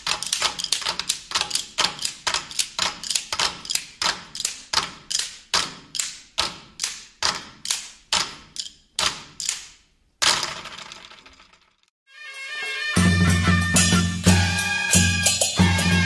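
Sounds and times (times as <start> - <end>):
drum beaten in a steady beat: 12.2 - 16.0.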